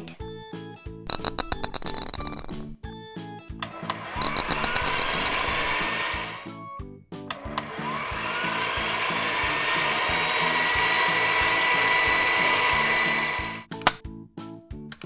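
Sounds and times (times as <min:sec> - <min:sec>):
light background music with beat: 0:00.0 - 0:15.0
cartoon machine whirring whine: 0:03.6 - 0:06.5, 0:07.4 - 0:13.7.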